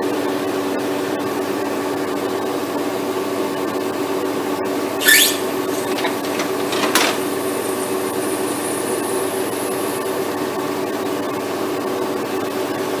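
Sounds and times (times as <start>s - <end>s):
sharp machine click: 5.0s - 9.0s
faint high whine: 5.0s - 10.1s
machine mechanical hum: 5.0s - 10.3s.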